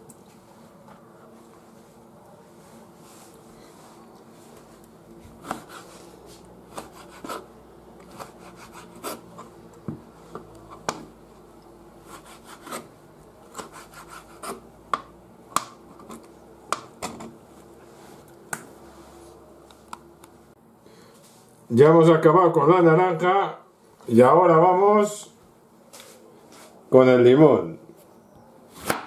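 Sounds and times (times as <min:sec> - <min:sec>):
knife scraping board: 0:05.3 - 0:09.5, 0:12.0 - 0:12.9, 0:13.5 - 0:14.6.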